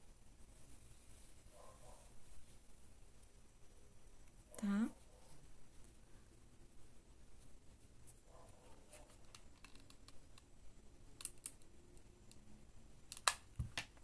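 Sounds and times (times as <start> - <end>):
glue gun plastic clicks: 13.1 - 13.9.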